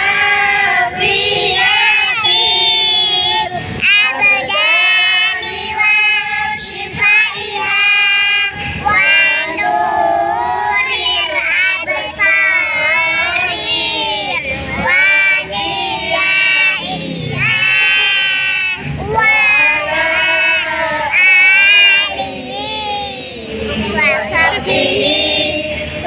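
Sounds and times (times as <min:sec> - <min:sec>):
girls singing together: 0:00.0 - 0:26.0.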